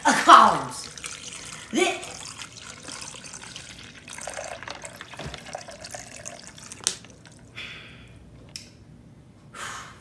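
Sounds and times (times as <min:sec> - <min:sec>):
water running: 0:00.0 - 0:07.6.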